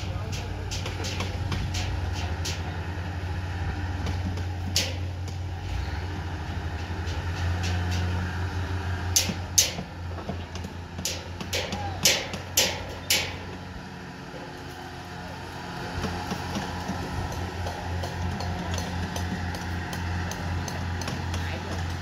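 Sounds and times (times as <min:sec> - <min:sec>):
diesel engine droning: 0:00.0 - 0:22.0
sharp knocks: 0:04.1 - 0:05.4, 0:09.1 - 0:13.6.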